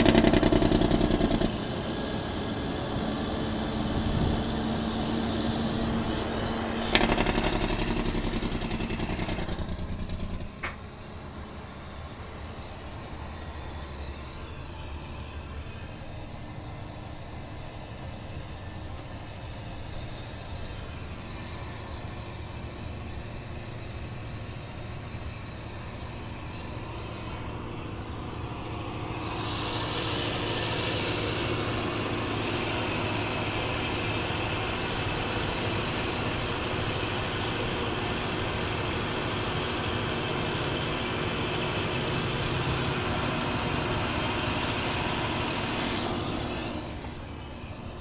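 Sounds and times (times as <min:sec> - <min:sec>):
rushing wind and tyre noise: 0:00.0 - 0:10.7
truck engine and road noise: 0:00.0 - 0:48.0.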